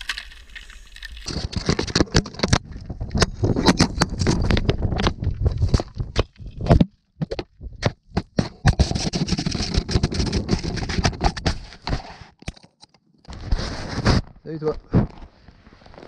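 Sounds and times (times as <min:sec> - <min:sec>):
scraping slide through snow: 0:13.4 - 0:14.3.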